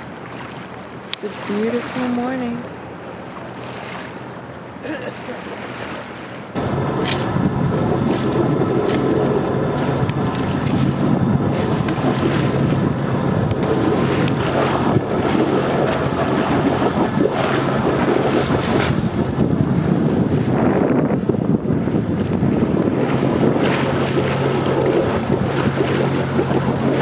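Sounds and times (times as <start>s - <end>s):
low engine hum: 0.0s - 27.0s
water washing past hull: 0.0s - 27.0s
wind buffeting microphone: 6.5s - 27.0s.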